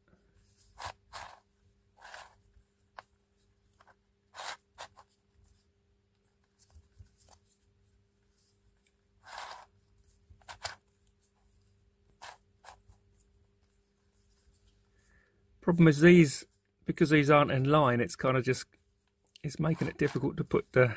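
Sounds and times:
plastic cube clicks and scrapes: 3.8s - 5.0s, 9.2s - 9.7s, 10.4s - 10.8s.

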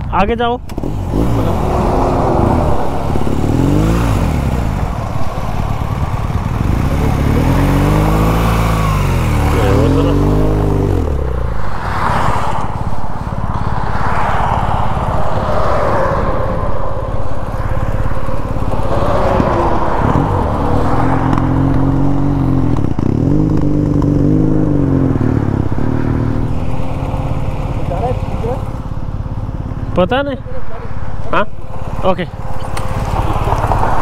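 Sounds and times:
motorcycle engine running: 0.0s - 34.0s
wind rush: 0.8s - 9.4s, 10.3s - 23.3s.

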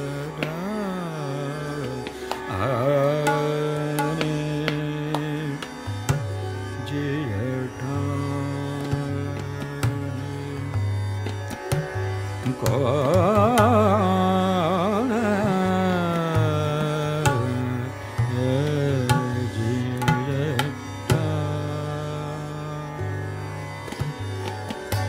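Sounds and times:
man singing ornamented phrases: 0.0s - 5.7s, 6.8s - 10.5s, 12.5s - 23.0s
sparse tabla strokes: 1.7s - 7.0s, 16.1s - 21.8s.

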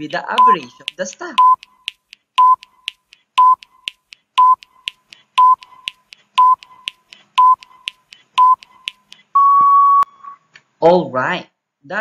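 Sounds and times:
faint ticking: 0.0s - 9.3s
short electronic beeps: 0.4s - 1.6s, 2.4s - 2.7s, 3.4s - 3.7s, 4.4s - 4.7s, 5.4s - 6.7s, 7.4s - 7.7s, 8.4s - 10.4s.

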